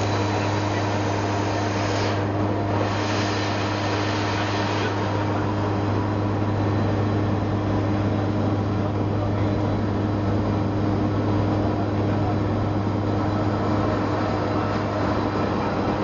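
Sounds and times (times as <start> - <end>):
rushing air: 0.0 - 8.4
engine and propeller hum: 0.0 - 16.0.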